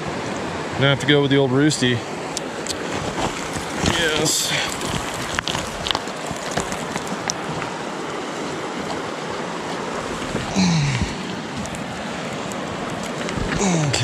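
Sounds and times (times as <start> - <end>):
mountain stream running: 0.0 - 14.0
boots scraping on loose rock: 2.7 - 7.8, 9.9 - 12.1, 12.8 - 14.0
grunt of effort: 10.4 - 11.3, 13.5 - 14.0.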